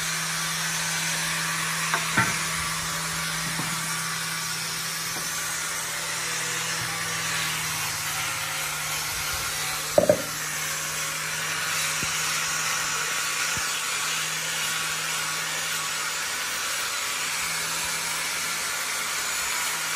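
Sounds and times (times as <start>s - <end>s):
power tool on wood: 0.0s - 19.9s.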